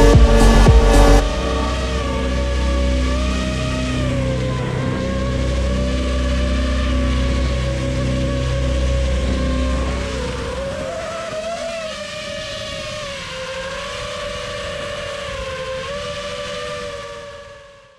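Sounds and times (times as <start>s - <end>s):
drone motors and propellers whining: 0.0s - 17.9s.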